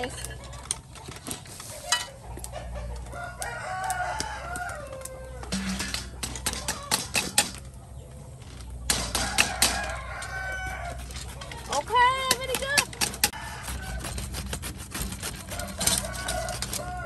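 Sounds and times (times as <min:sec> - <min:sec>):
rooster crowing: 0:02.5 - 0:05.8, 0:09.0 - 0:11.4, 0:13.2 - 0:14.4, 0:15.4 - 0:17.0.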